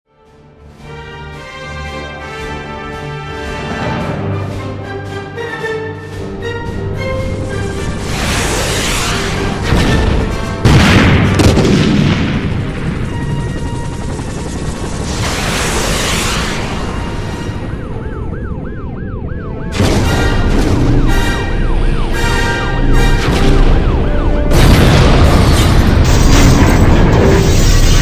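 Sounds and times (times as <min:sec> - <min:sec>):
music with impacts: 0:02.4 - 0:13.8, 0:19.7 - 0:28.0
loud boom: 0:09.6 - 0:13.3, 0:19.7 - 0:28.0
wailing siren-like alarm: 0:12.8 - 0:27.4.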